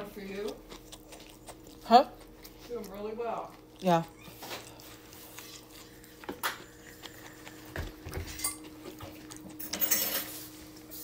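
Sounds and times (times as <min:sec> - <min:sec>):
dishes and utensils clinking: 0:08.1 - 0:10.5.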